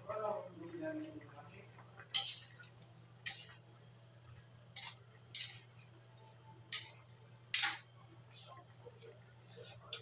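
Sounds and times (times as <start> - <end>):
low steady hum: 0.0 - 10.0
metal ladle scraping a pan: 2.1 - 2.6, 4.7 - 5.7.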